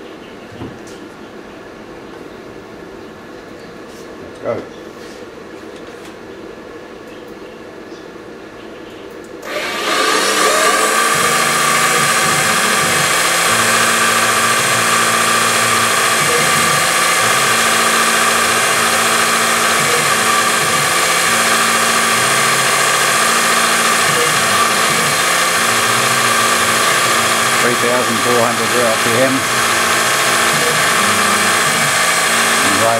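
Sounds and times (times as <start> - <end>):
axis motors humming: 9.4 - 32.9
mill spindle running high-pitched: 9.4 - 32.9.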